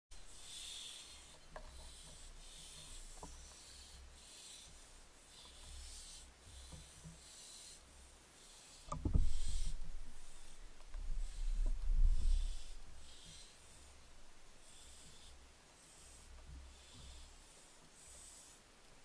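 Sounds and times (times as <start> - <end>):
owl thump and scuffle: 9.0 - 9.7.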